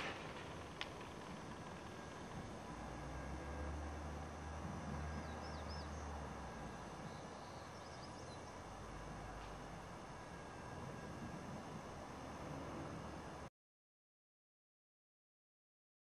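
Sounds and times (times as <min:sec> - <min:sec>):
faint outdoor hiss: 0:00.0 - 0:13.5
small birds chirping: 0:04.9 - 0:06.2, 0:06.8 - 0:08.7.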